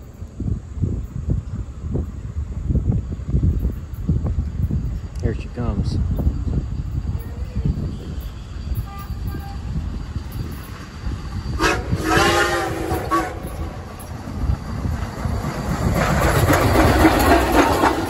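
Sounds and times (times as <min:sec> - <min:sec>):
locomotive wheels rattling: 0:00.0 - 0:18.0
steam whistle: 0:11.5 - 0:13.8.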